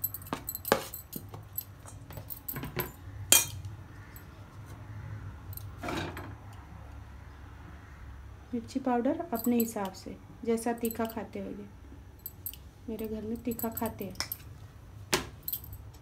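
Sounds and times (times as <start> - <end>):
metal spoon clinking in steel bowl: 2.8 - 3.6, 12.3 - 14.5.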